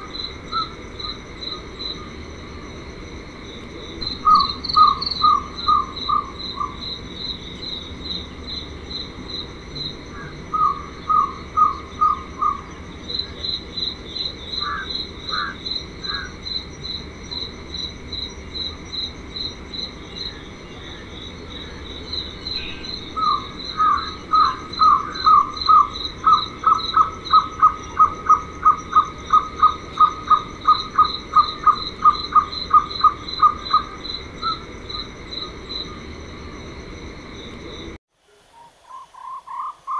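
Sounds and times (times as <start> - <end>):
crickets chirping: 0.0 - 39.9
insect drone: 0.0 - 39.9
owlet calling: 4.1 - 6.8, 38.3 - 39.9.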